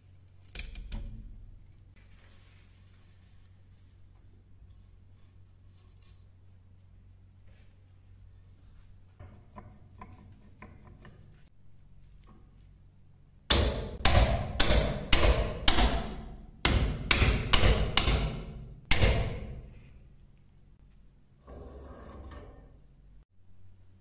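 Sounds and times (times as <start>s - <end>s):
hammer striking knife in vise: 13.5s - 19.8s.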